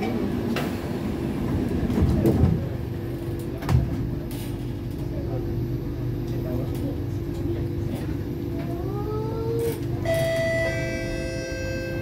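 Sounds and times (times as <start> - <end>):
train doors sliding shut: 0.0 - 2.8
train carriage hum: 0.0 - 12.0.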